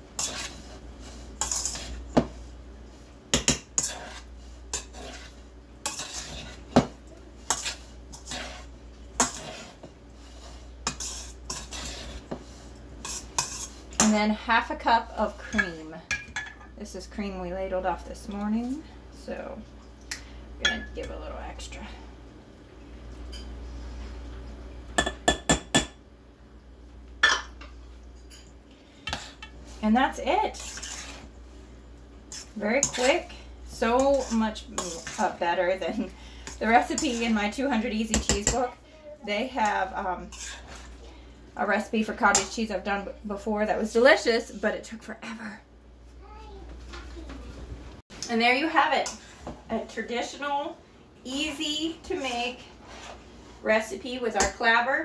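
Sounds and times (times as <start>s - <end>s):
hands mixing curds in metal bowl: 0.0s - 16.0s, 28.4s - 31.4s, 32.2s - 43.0s, 51.3s - 54.9s.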